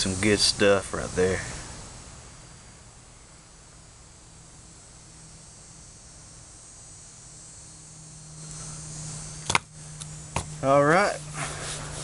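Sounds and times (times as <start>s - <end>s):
faint steady hiss: 0.0s - 12.0s
low even hum: 0.0s - 12.0s.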